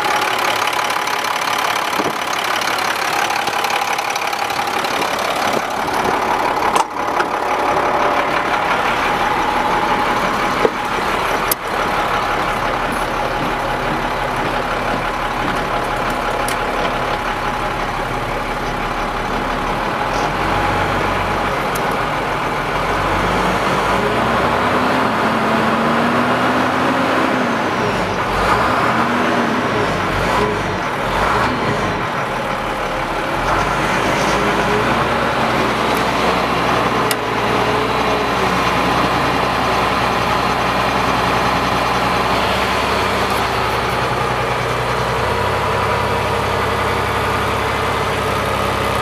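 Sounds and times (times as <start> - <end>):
truck engine idling: 0.0 - 49.0.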